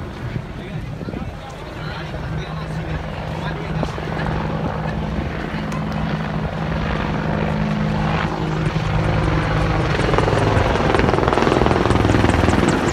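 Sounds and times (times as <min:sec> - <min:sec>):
helicopter engine and rotor noise: 0:00.0 - 0:12.9.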